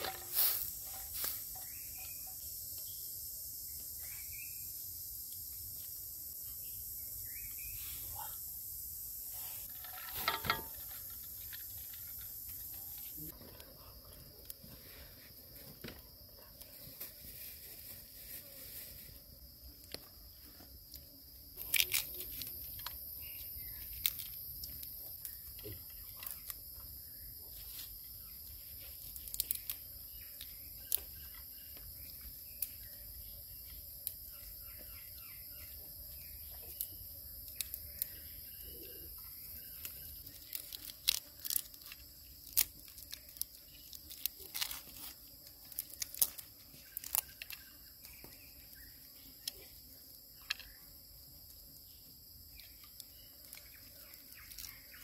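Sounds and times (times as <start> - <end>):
high-pitched insect drone: 0.0 - 13.4
bird chirps: 1.5 - 4.8, 6.5 - 8.4
grilled fish being torn by hand: 40.5 - 45.2.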